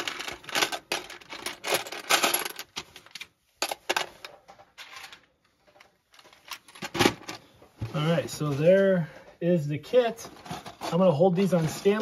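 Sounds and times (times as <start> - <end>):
plastic pieces rattling and clicking: 0.0 - 7.4.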